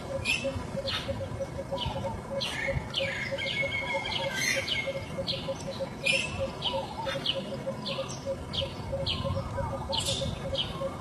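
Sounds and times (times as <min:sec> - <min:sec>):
high-pitched chirping calls: 0:00.0 - 0:11.0.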